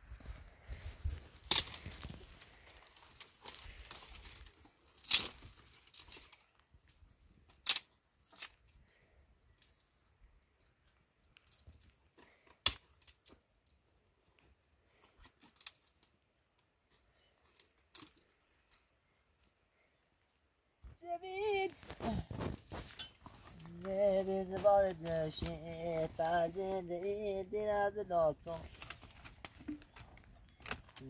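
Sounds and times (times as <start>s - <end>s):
light rustling and crackling: 0.0s - 31.0s
twigs snapping: 1.3s - 6.7s, 7.5s - 8.6s, 11.3s - 13.8s, 28.4s - 31.0s.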